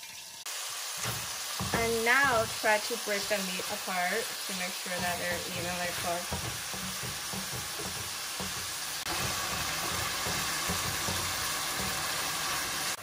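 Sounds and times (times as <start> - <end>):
meat sizzling in frying pan: 0.0 - 13.0
wooden spatula scraping pan: 4.9 - 12.7.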